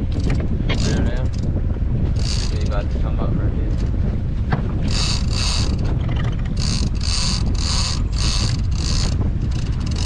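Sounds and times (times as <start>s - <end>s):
wind and boat rumble: 0.0s - 10.0s
fishing reel whirring: 0.1s - 1.5s, 2.1s - 2.8s, 4.8s - 10.0s.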